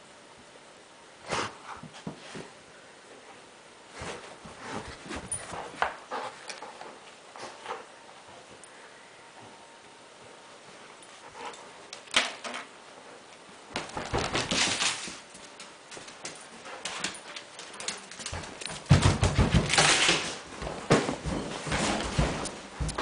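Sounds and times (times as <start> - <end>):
thumps and rustles: 3.9 - 6.1, 13.8 - 15.3, 18.2 - 23.0
dog claws clicking on wood floor: 13.8 - 20.3.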